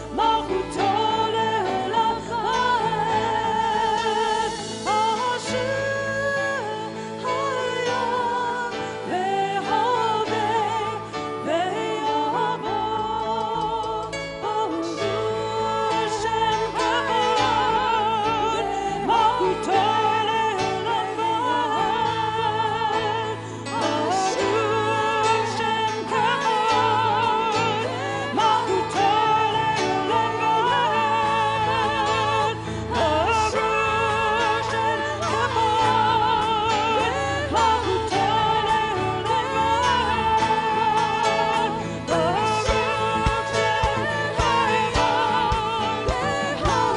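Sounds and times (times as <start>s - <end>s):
keyboard: 0.0s - 46.9s
singers holding long notes: 0.0s - 46.9s.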